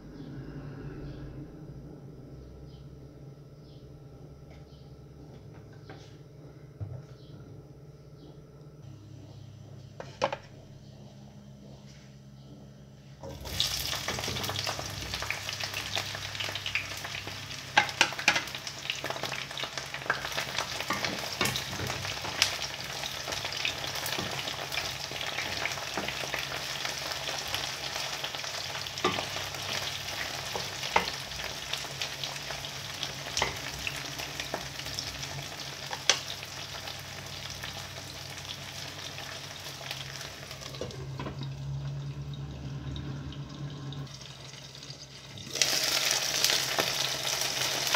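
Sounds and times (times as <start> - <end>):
food sizzling in hot oil: 13.2 - 47.9.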